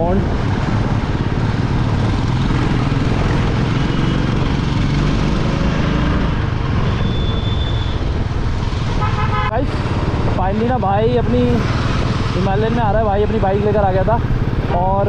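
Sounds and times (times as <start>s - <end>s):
wind and road noise: 0.0s - 15.0s.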